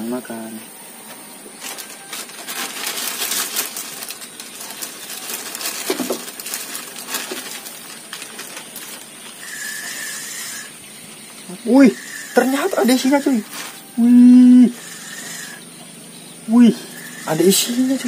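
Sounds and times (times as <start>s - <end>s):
thin high steady tone: 8.8s - 18.0s.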